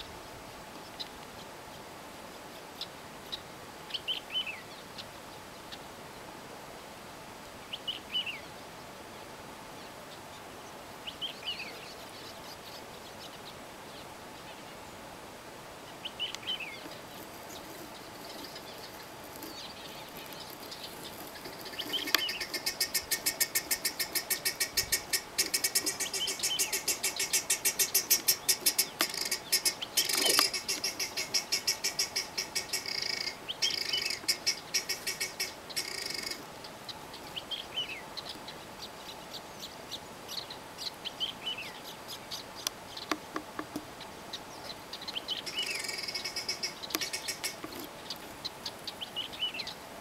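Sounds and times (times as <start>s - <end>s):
bird chirping: 15.9s - 49.8s.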